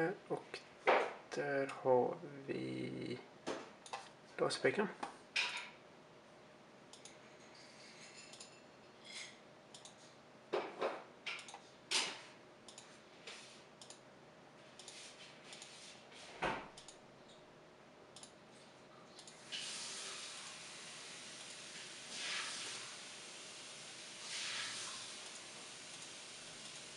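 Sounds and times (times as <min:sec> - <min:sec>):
computer mouse clicking: 0:06.9 - 0:07.2, 0:09.7 - 0:10.0, 0:13.8 - 0:14.0, 0:16.8 - 0:17.4
steady hiss: 0:19.3 - 0:26.9.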